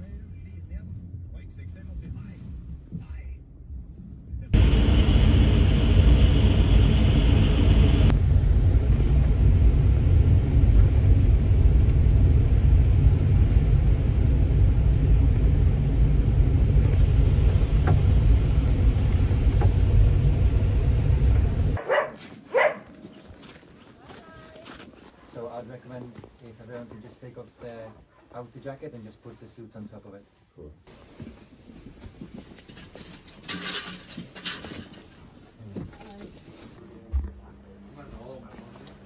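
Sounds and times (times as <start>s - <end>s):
road rumble inside vehicle: 0.0s - 21.8s
dog yelping: 21.8s - 23.0s.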